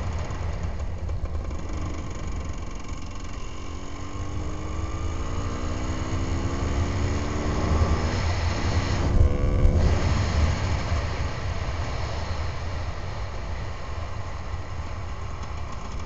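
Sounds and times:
motorcycle engine accelerating: 0.0 - 16.0
wind buffeting microphone: 4.9 - 16.0.

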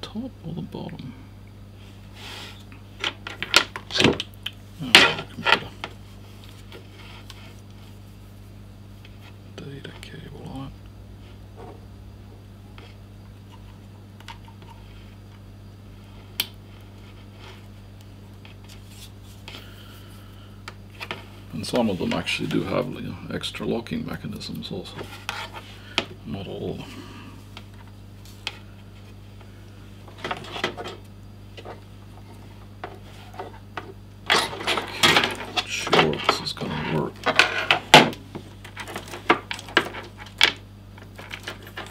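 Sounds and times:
steady low hum: 0.0 - 41.9
rustling and clattering: 30.0 - 41.9.

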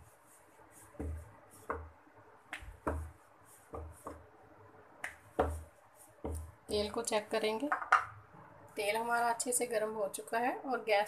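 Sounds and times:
rolling pin knocking on wooden board: 1.0 - 4.3, 5.0 - 6.5.

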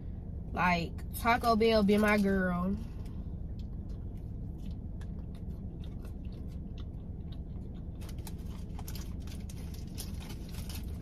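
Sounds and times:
steady low rumble: 0.0 - 11.0
person chewing food: 3.1 - 11.0.

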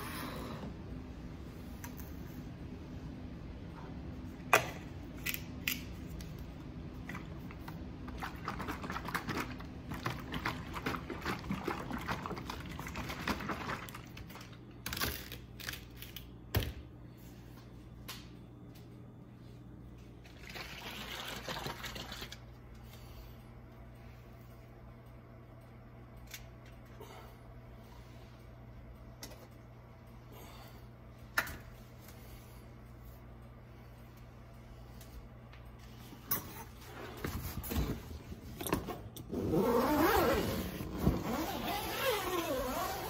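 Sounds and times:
steady low hum: 0.0 - 43.0
liquid sloshing in plastic bottle: 7.5 - 14.6.

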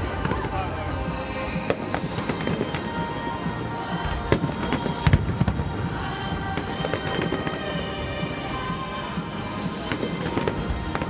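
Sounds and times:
fireworks bursting: 0.0 - 11.0
music playing: 0.0 - 11.0.

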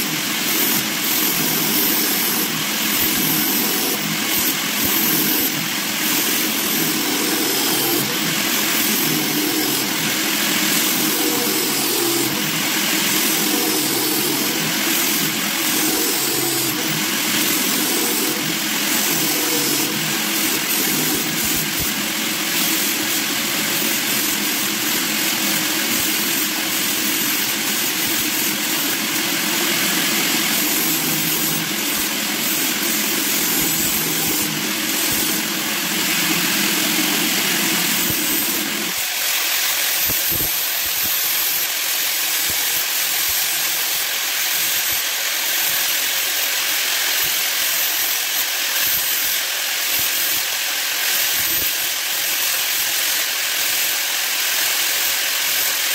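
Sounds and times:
angle grinder motor whine: 0.0 - 40.4
sanding hiss: 0.0 - 55.9.

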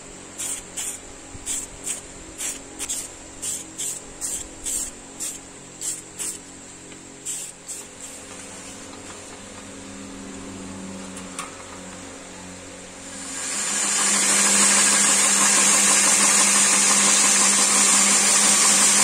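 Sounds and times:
steady low hum: 0.0 - 13.7
aerosol spray can hissing: 0.4 - 6.4, 7.2 - 8.2.

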